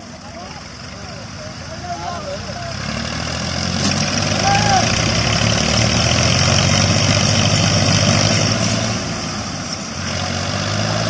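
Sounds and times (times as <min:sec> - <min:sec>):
tractor diesel engines droning: 0:00.0 - 0:11.0.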